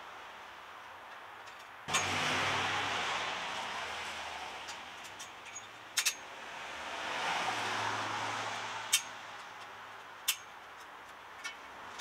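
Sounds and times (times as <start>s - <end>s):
vehicle passing: 1.9s - 5.0s, 6.4s - 9.4s.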